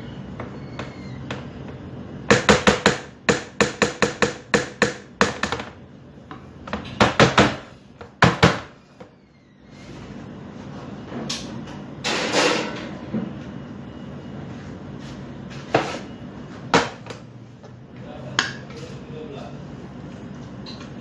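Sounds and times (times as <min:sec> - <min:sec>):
knocking on metal cake pan: 0:02.3 - 0:05.7.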